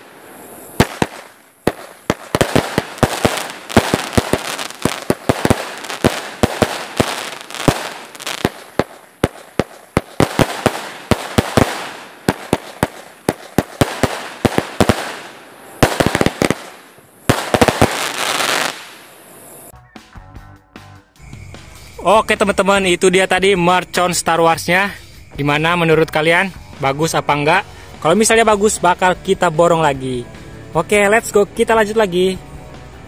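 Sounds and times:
firework bangs: 0.0 - 19.3
firework crackling: 0.0 - 19.7.

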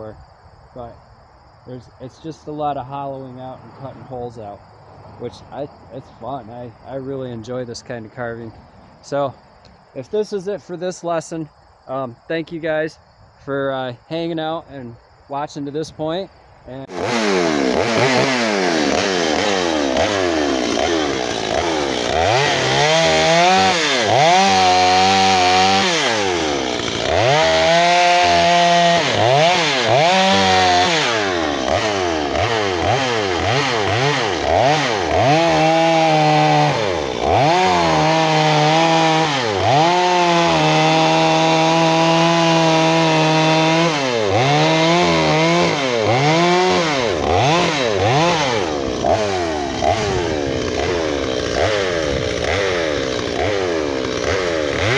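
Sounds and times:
chainsaw revving and cutting wood: 16.7 - 54.9.

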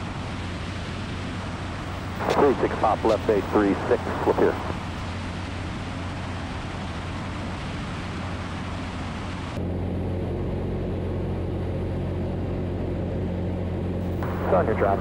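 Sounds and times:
aircraft engine and propeller drone: 0.0 - 15.0.

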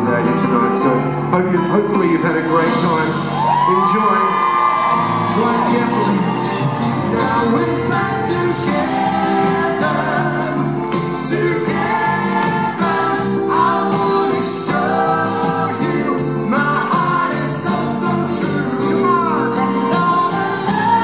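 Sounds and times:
band with electric guitar: 0.0 - 21.0
man singing into a microphone: 7.0 - 21.0.

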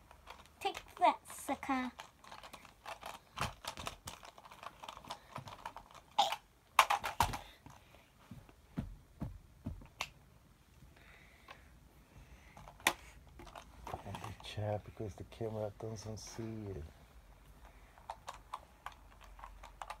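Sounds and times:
toys knocking together: 2.0 - 7.7.

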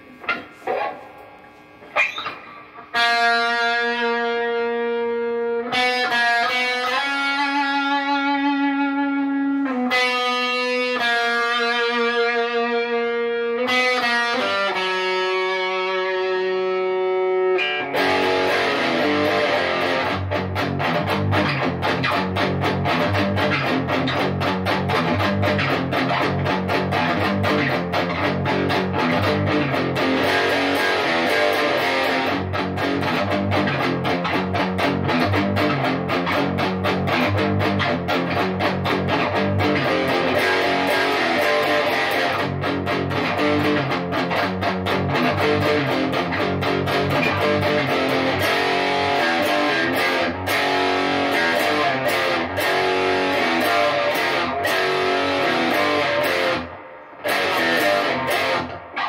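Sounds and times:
distorted electric guitar: 0.0 - 59.0.

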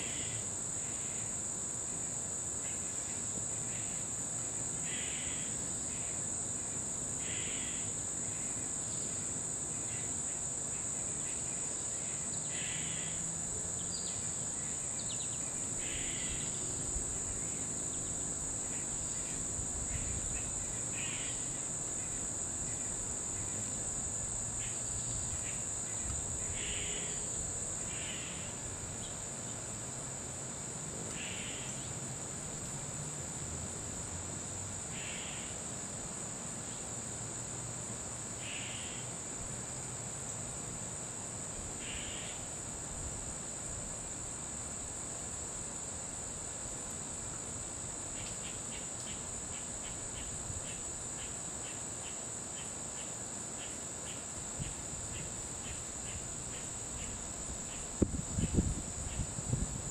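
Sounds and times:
short harsh insect calls: 0.0 - 1.4, 4.8 - 6.4, 7.2 - 29.4, 31.1 - 32.0, 34.9 - 35.7, 38.3 - 39.3, 41.8 - 42.7, 48.1 - 59.9
high-pitched insect drone: 0.0 - 29.5, 31.2 - 31.9, 34.9 - 35.6, 38.3 - 39.3, 41.8 - 42.7, 47.4 - 59.9.

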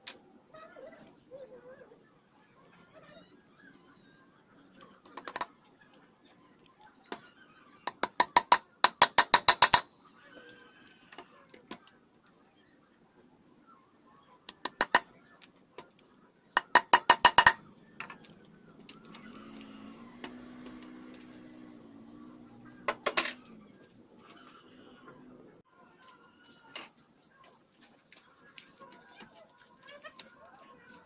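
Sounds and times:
hammer driving nails into wood: 7.9 - 9.9, 14.5 - 15.0, 16.6 - 17.6.

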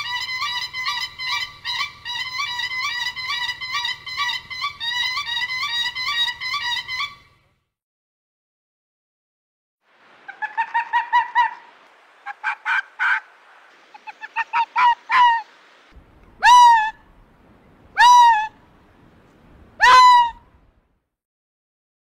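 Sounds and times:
loud pitched animal calls: 10.2 - 15.6, 16.4 - 17.0, 18.0 - 18.6, 19.8 - 20.4.

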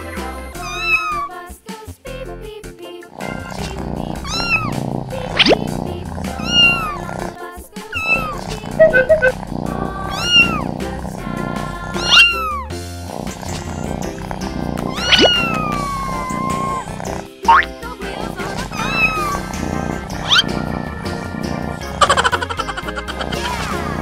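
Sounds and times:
background music: 0.0 - 24.0
high-pitched kitten meows: 0.6 - 1.3, 4.2 - 4.7, 6.4 - 7.0, 7.9 - 9.3, 10.1 - 10.6, 12.0 - 12.7, 14.9 - 16.8, 18.8 - 19.4.

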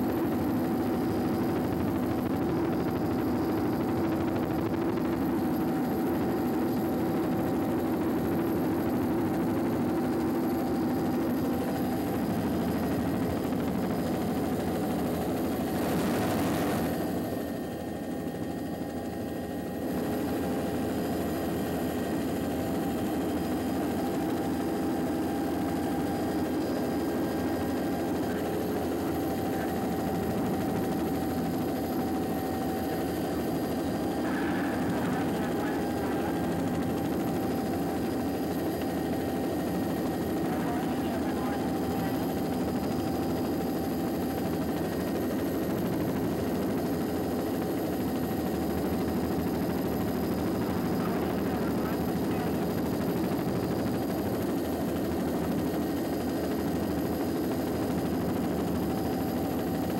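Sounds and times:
aircraft engine drone: 0.0 - 47.7.

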